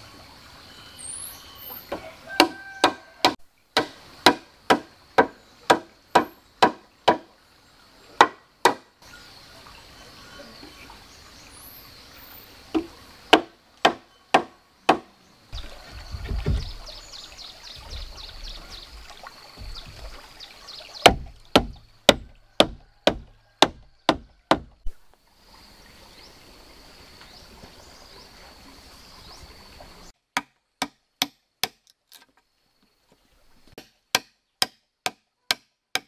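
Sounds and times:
wooden mallet knocking on wood: 0:02.4 - 0:07.2, 0:08.2 - 0:08.8, 0:12.7 - 0:15.1, 0:16.1 - 0:17.0, 0:19.6 - 0:20.2, 0:21.0 - 0:24.9
log rumbling and bumping: 0:12.7 - 0:25.0.

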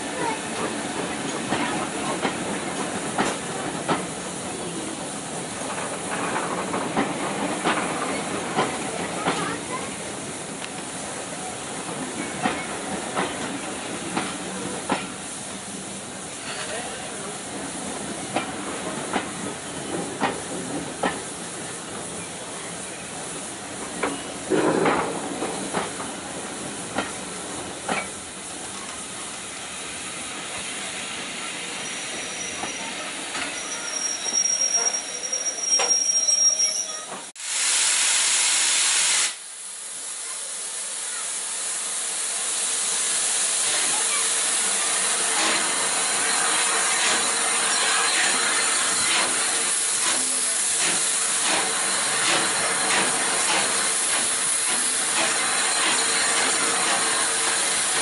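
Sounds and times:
loud burst of steam hiss: 0:00.0 - 0:35.9, 0:37.0 - 0:58.0
locomotive steam hiss: 0:00.0 - 0:58.0
steam train rolling: 0:00.0 - 0:58.0
wheels clicking over rail joints: 0:05.5 - 0:10.0
high squeal of wheels: 0:31.8 - 0:37.2.

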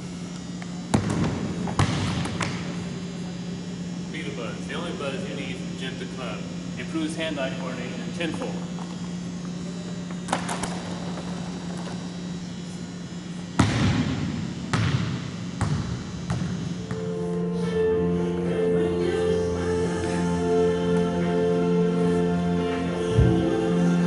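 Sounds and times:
steady low hum: 0:00.0 - 0:24.0
basketball bouncing on wooden court: 0:00.9 - 0:02.5, 0:13.6 - 0:16.7
music: 0:16.8 - 0:24.0.

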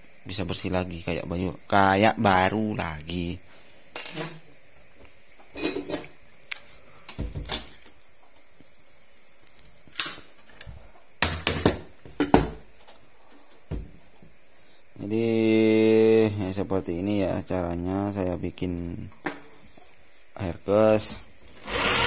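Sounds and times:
cricket chirring: 0:00.0 - 0:22.0
metallic clatter of rivets: 0:05.4 - 0:06.1.

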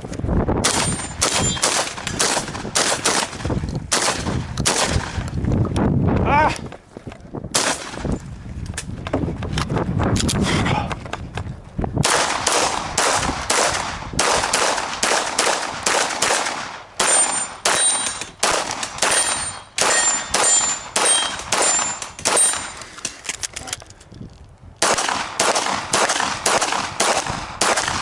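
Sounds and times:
pistol fired rapidly: 0:00.6 - 0:05.1, 0:12.0 - 0:22.8, 0:24.8 - 0:28.0
steel targets ringing: 0:17.0 - 0:18.4, 0:19.0 - 0:22.8.

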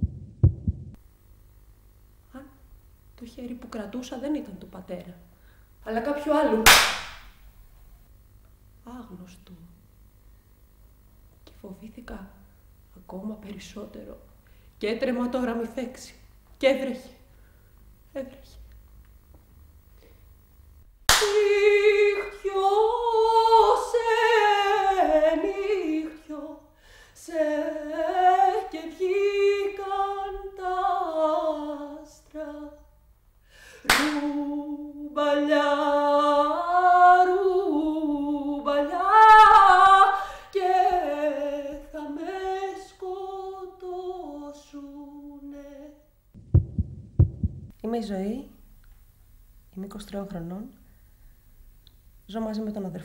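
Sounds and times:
woman singing unaccompanied: 0:03.2 - 0:06.7, 0:21.2 - 0:33.0, 0:33.9 - 0:46.1.

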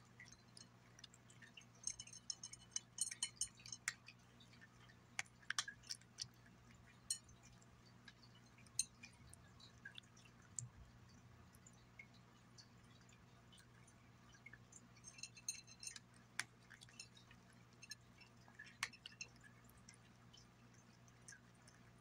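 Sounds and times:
cat chewing: 0:00.0 - 0:22.0
teeth clinking against glass plate: 0:00.1 - 0:04.2, 0:06.9 - 0:07.5, 0:08.2 - 0:09.3, 0:15.0 - 0:19.4.

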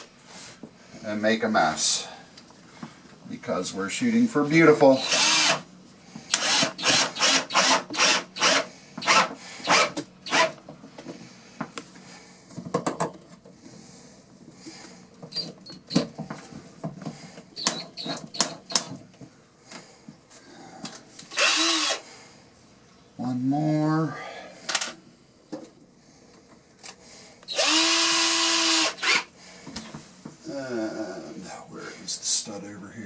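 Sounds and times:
cordless drill drilling into wood: 0:05.0 - 0:05.6, 0:06.3 - 0:10.5, 0:21.3 - 0:22.0, 0:27.5 - 0:29.3.

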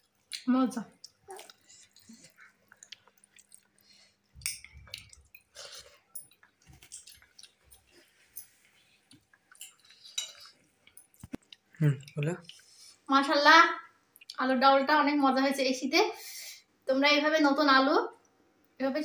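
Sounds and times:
faint chewing: 0:00.0 - 0:13.0.

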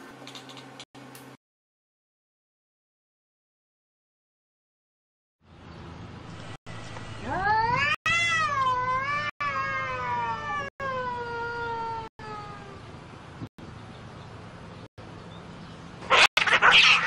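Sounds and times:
cat yowling: 0:07.2 - 0:12.8.

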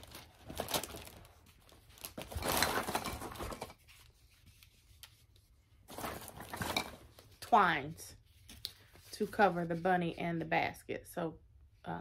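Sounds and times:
packaging rustling: 0:00.0 - 0:04.1, 0:05.9 - 0:07.3.

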